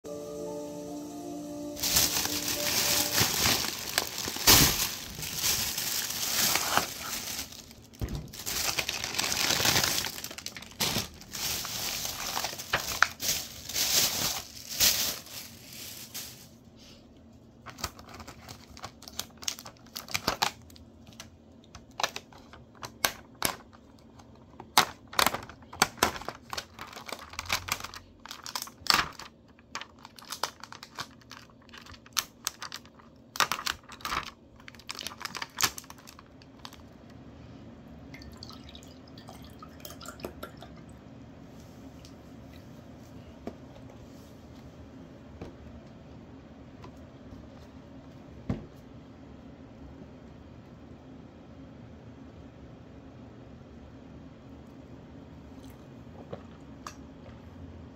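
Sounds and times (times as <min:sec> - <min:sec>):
plastic bag rustling: 0:01.6 - 0:16.7, 0:25.1 - 0:36.9
plastic film crackling: 0:01.7 - 0:16.6, 0:17.6 - 0:21.2, 0:24.8 - 0:37.0.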